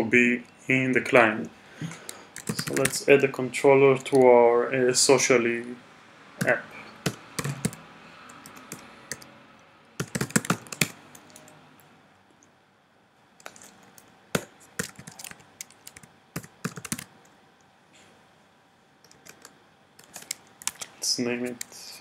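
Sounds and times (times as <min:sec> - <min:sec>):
typing on computer keyboard: 0:02.1 - 0:03.0, 0:06.4 - 0:09.3, 0:10.0 - 0:11.6, 0:13.4 - 0:17.2, 0:19.0 - 0:20.9.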